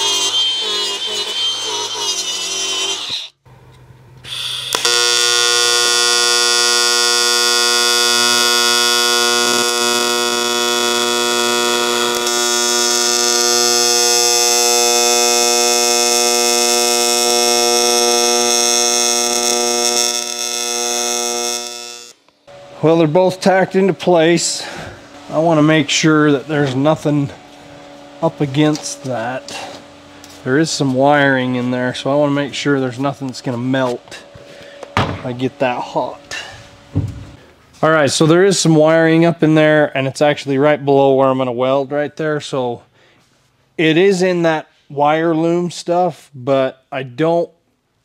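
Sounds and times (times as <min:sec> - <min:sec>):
wire wheel grinder scrubbing metal: 0:00.0 - 0:03.3
welding arc buzz: 0:00.0 - 0:03.4, 0:04.2 - 0:32.4.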